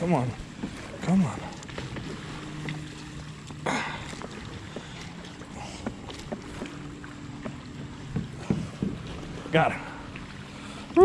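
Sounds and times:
knocks and clicks on kayak: 0:05.8 - 0:09.1.

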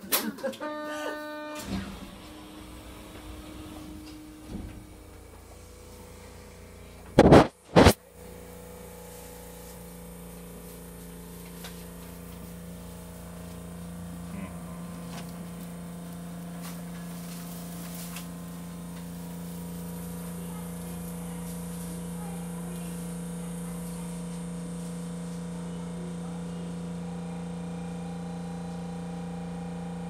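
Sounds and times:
two-tone electrical hum: 0:00.0 - 0:30.0
loud short noise bursts: 0:07.2 - 0:08.0.

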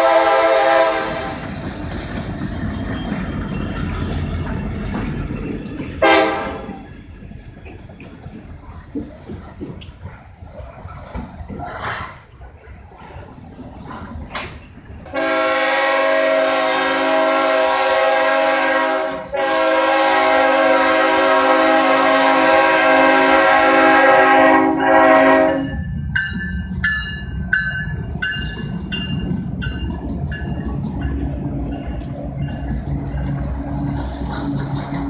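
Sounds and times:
locomotive air horn: 0:00.0 - 0:01.4, 0:06.0 - 0:06.8, 0:15.1 - 0:25.8
locomotive rumble: 0:00.0 - 0:35.0.

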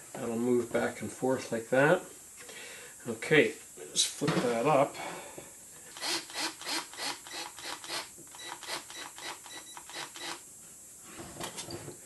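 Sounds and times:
cordless drill pulsing: 0:05.9 - 0:10.4.

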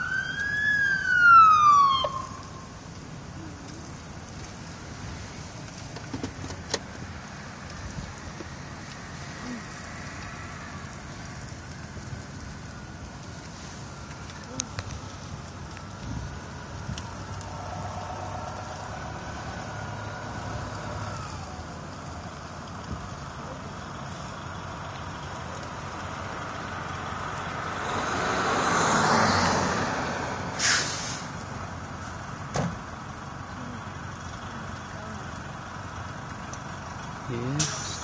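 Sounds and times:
engine hum: 0:00.0 - 0:38.0
road noise of passing vehicle: 0:00.0 - 0:38.0
short sharp hiss: 0:30.5 - 0:31.4, 0:37.6 - 0:38.0.

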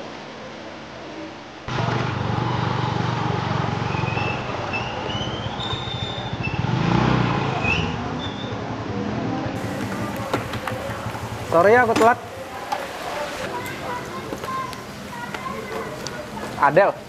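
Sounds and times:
motorcycle engine running: 0:01.7 - 0:12.7.

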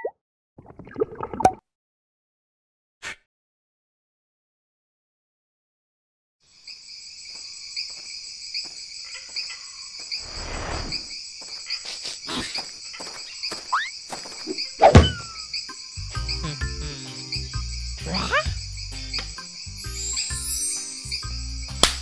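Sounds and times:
crickets chirping: 0:06.4 - 0:22.0
loud thump: 0:14.9 - 0:15.3
music: 0:15.7 - 0:22.0.

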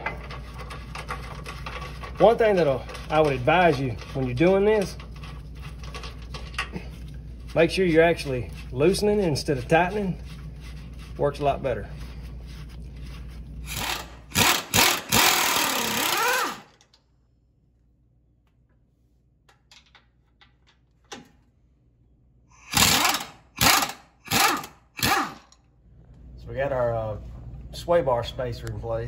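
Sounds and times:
impact wrench hammering: 0:13.7 - 0:16.7, 0:22.6 - 0:25.5.

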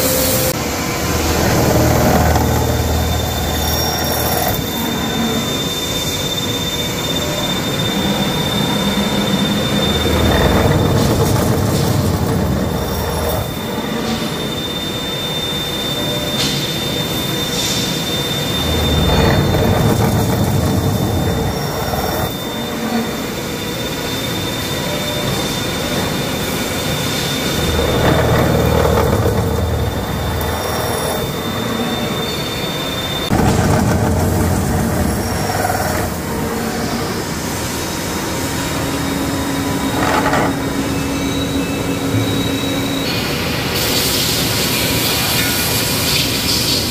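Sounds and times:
metal-cutting machine noise: 0:00.0 - 0:46.9
thin high whine: 0:00.0 - 0:46.9.

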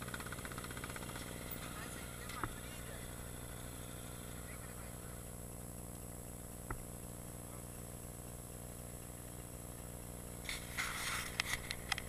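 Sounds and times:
dirt bike engine idling: 0:00.0 - 0:12.0
rustling noise: 0:10.4 - 0:12.0.

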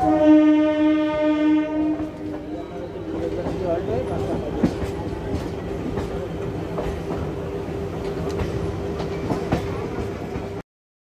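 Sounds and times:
train running hum: 0:00.0 - 0:10.6
wheels clacking over rail joints: 0:03.2 - 0:10.5.

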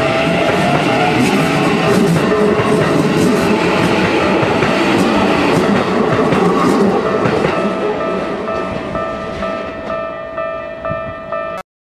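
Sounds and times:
train wheels rumbling over rail joints: 0:00.0 - 0:10.1
level crossing warning bell: 0:03.5 - 0:11.6.

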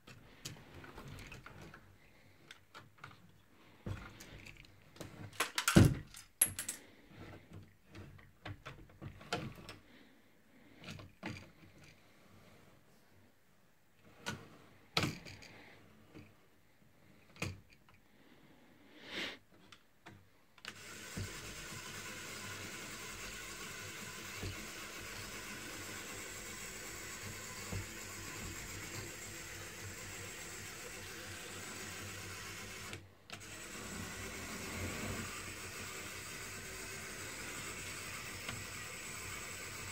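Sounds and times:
toy motor spinning: 0:20.6 - 0:39.9.

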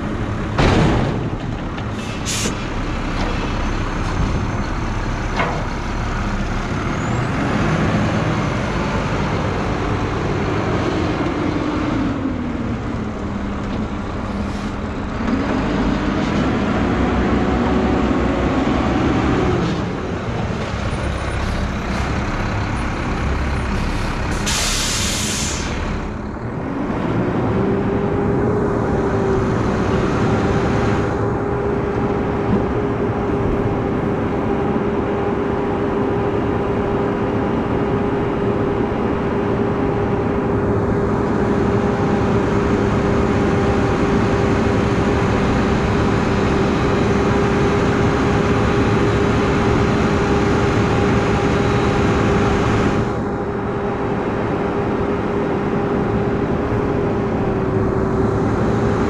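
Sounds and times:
garbage truck engine running: 0:00.0 - 0:59.0
air brakes hissing: 0:01.9 - 0:02.8, 0:23.7 - 0:26.0.

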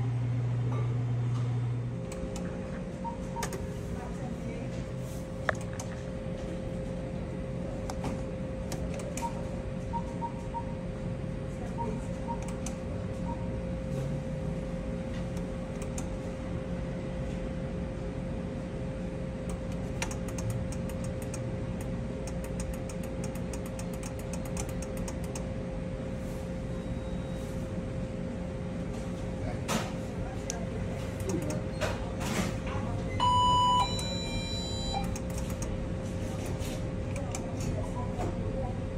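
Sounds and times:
electrical hum with held tone: 0:00.0 - 0:38.9
game machine clicking: 0:03.3 - 0:03.6, 0:08.7 - 0:09.4, 0:12.3 - 0:12.8, 0:19.5 - 0:25.4, 0:31.2 - 0:31.6, 0:35.0 - 0:35.8
short beeps: 0:11.7 - 0:13.6, 0:26.8 - 0:27.5, 0:33.1 - 0:35.2.

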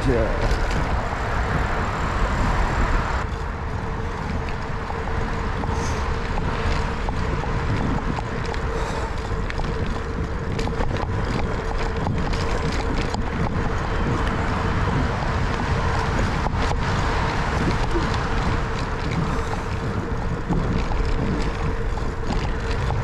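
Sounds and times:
steady hum: 0:00.0 - 0:23.0
tyres rolling on pavement: 0:00.0 - 0:23.0
wind buffeting microphone: 0:00.0 - 0:23.0
small clicks and ticks: 0:03.2 - 0:23.0.

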